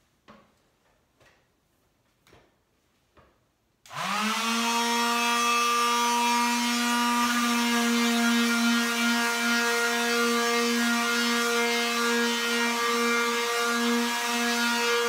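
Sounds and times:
electric sander whining: 3.9 - 15.0.

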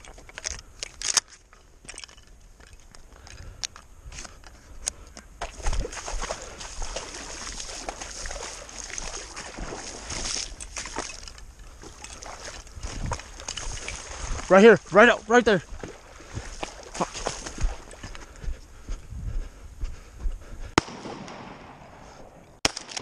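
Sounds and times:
dog splashing into water: 5.4 - 11.2
dog swimming and splashing: 5.4 - 14.5, 15.7 - 18.1.

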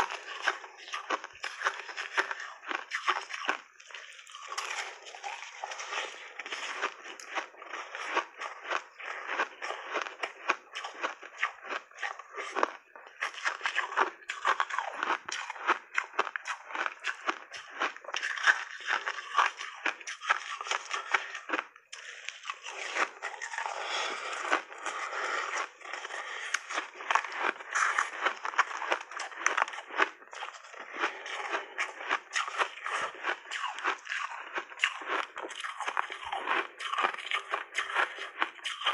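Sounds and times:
crunching and chewing ice: 0.0 - 38.9.

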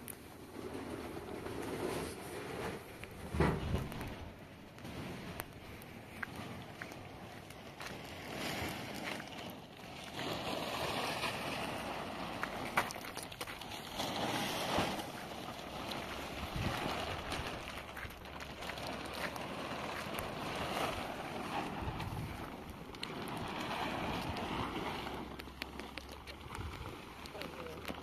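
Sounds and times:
gusty wind on microphone: 0.4 - 9.5, 13.8 - 25.4, 26.4 - 27.3.

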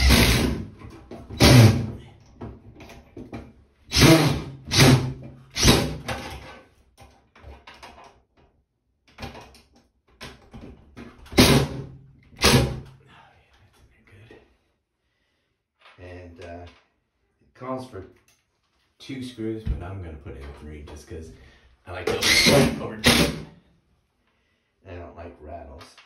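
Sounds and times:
cordless drill driving screws: 0.0 - 0.6, 3.9 - 6.2, 22.1 - 23.4.

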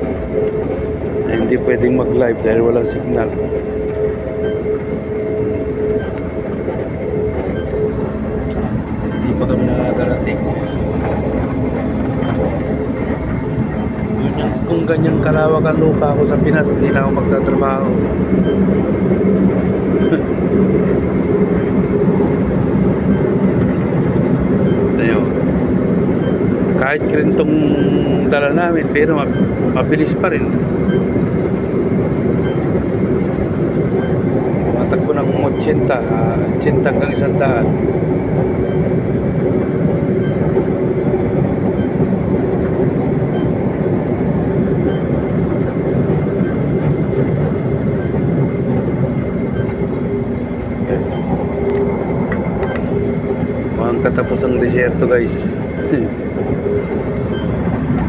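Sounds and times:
engine drone: 0.0 - 58.0.

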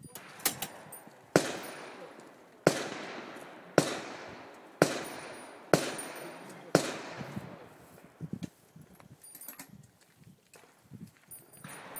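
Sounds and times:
revolver gunshots echoing: 0.2 - 7.7, 11.6 - 11.9.

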